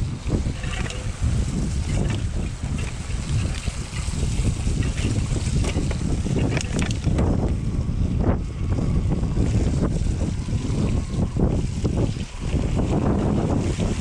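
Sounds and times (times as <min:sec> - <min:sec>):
bike knocks and rattles: 0:00.0 - 0:07.5
wind buffeting microphone: 0:00.0 - 0:14.0.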